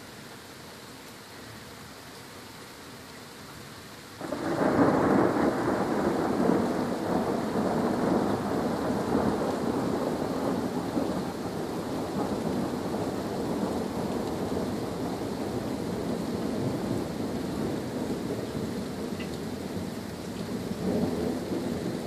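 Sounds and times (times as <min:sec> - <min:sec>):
steady rain: 0:00.0 - 0:22.0
thunderclap rolling: 0:04.2 - 0:22.0.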